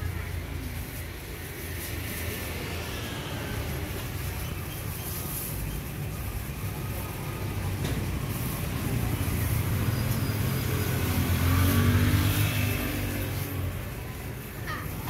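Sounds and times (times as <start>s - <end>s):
vehicle engine passing by: 7.4s - 15.0s.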